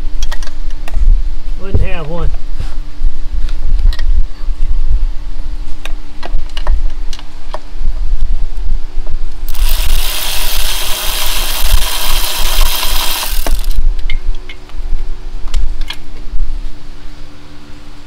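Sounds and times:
loud hiss: 0:09.5 - 0:13.8
hand tools clicking and rattling: 0:09.5 - 0:14.2.

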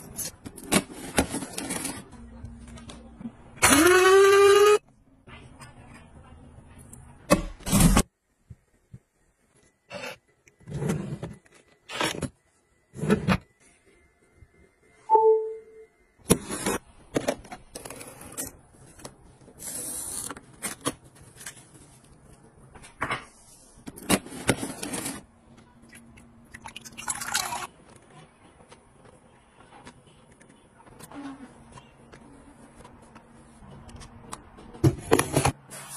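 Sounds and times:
short electronic beep: 0:15.0 - 0:16.0.

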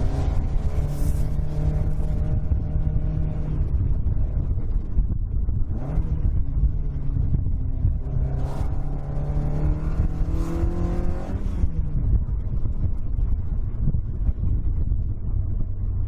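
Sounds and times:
car engine accelerating: 0:00.0 - 0:13.3
road rumble: 0:00.0 - 0:16.0.

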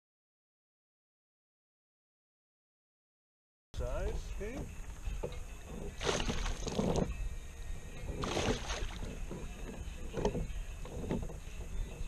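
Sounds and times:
fish splashing at surface: 0:06.0 - 0:06.7, 0:08.2 - 0:09.1.

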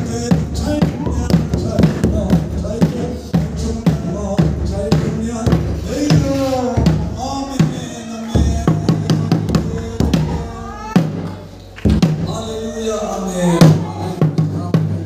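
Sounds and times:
drum beating: 0:00.0 - 0:15.0
people singing: 0:00.0 - 0:15.0.

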